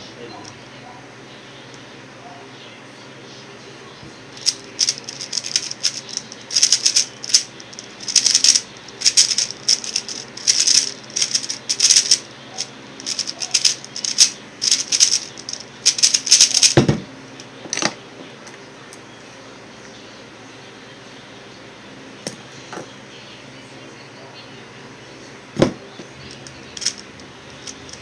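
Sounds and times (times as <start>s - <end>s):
puzzle cube plastic clicking: 4.4s - 12.2s, 13.0s - 16.8s, 26.3s - 27.0s.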